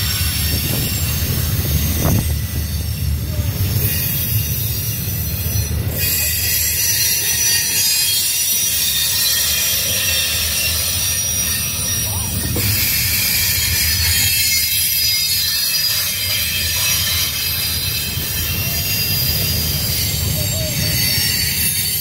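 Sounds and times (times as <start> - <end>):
high-pitched wheel squeal: 0.0 - 22.0
train wheels rumbling on track: 0.0 - 22.0.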